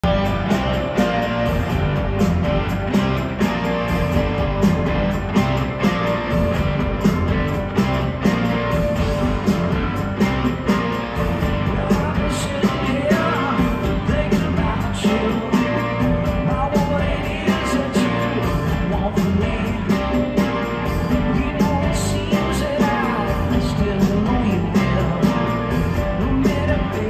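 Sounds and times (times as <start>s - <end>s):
drums steady beat: 0.0s - 27.0s
live rock band playing: 0.0s - 27.0s.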